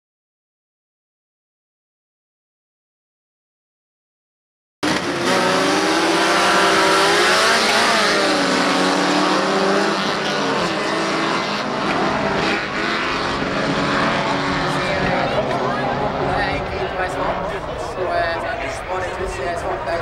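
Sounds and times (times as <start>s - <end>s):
race car engines: 4.8s - 20.0s.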